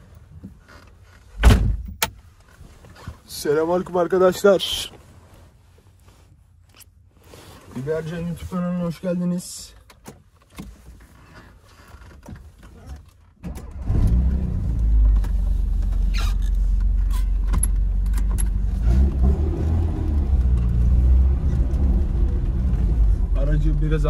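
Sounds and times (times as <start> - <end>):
car engine starting and revving: 13.4 - 24.0.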